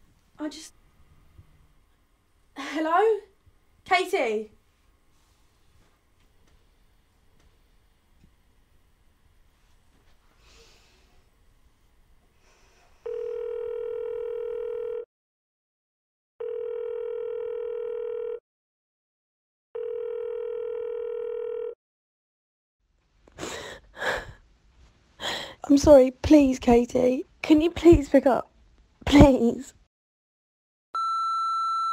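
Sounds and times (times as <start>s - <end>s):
telephone ringing tone beeps: 13.1s - 15.0s, 16.4s - 18.4s, 19.8s - 21.8s, 31.0s - 31.9s.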